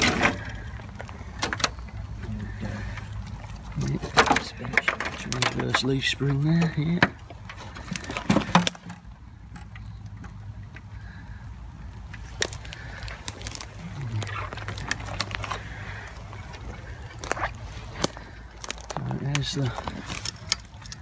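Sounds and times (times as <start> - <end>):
twigs snapping and crackling: 0.0 - 21.0
footsteps in undergrowth: 12.0 - 21.0.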